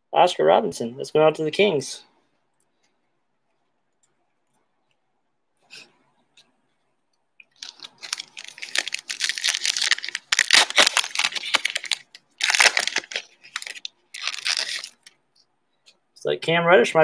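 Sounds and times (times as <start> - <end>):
foil wrapper crinkling and tearing: 7.5 - 15.2.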